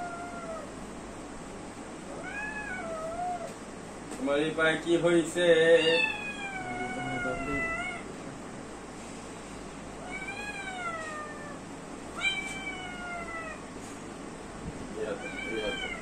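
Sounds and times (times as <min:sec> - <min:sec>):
cat meowing: 0:00.0 - 0:00.7, 0:02.1 - 0:03.5, 0:05.8 - 0:08.1, 0:10.0 - 0:13.7, 0:15.0 - 0:16.0.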